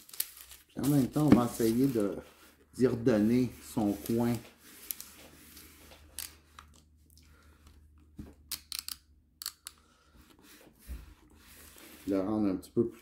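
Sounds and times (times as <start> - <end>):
paper crinkling: 0.0 - 6.4.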